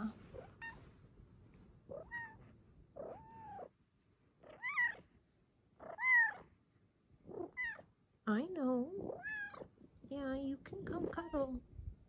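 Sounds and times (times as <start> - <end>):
cat meowing: 1.9 - 2.4, 3.0 - 3.7, 4.4 - 5.1, 5.8 - 6.5, 7.3 - 7.9, 9.1 - 9.7.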